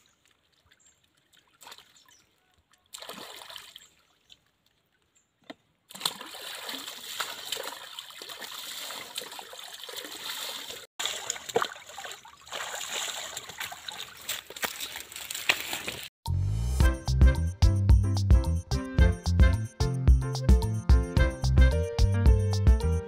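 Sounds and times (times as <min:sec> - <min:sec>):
water poured and splashing: 0:00.0 - 0:02.2, 0:02.8 - 0:04.8, 0:05.9 - 0:16.1
water trickling into pond: 0:00.0 - 0:05.2, 0:05.9 - 0:16.1.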